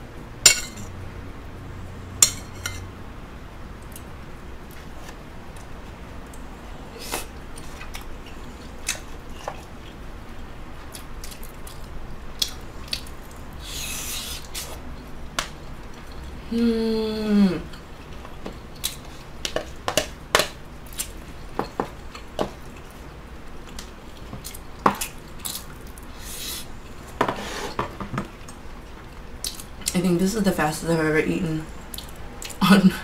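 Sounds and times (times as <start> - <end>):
chewing and mouth noises: 7.3 - 14.8, 20.8 - 26.1, 31.8 - 32.6.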